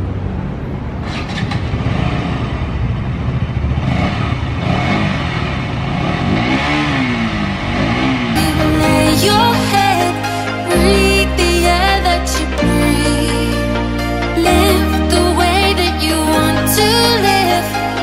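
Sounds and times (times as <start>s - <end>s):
motorcycle engine revving: 1.0s - 8.8s.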